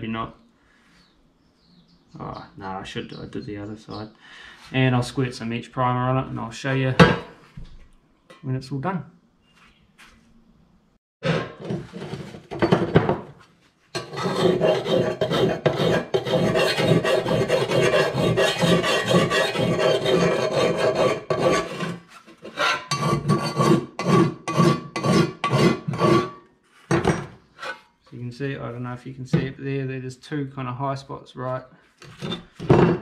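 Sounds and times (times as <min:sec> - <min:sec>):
file rasping on sheet steel: 0:14.0 - 0:26.4.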